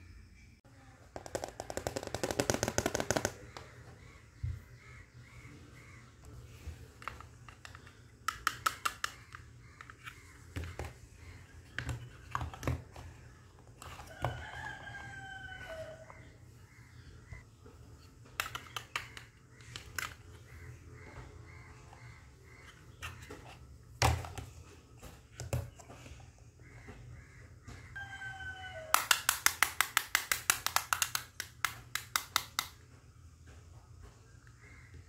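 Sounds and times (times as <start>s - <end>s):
plastic toy pieces clicking on tray: 7.1s - 10.2s, 18.4s - 20.2s, 28.9s - 32.8s.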